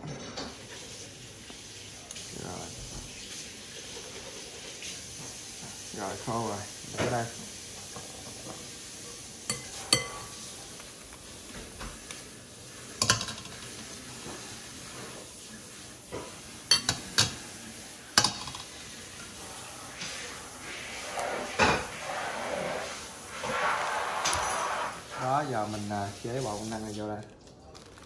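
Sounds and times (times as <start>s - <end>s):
spoon clinking on glass bowl: 9.5s - 10.4s
rustling: 20.1s - 28.0s.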